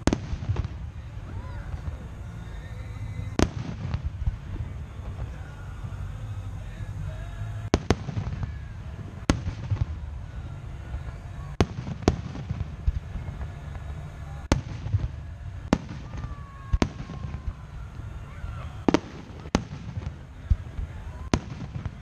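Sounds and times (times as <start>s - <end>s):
fireworks bursting in bangs: 0.0s - 22.0s
low background rumble: 0.0s - 22.0s.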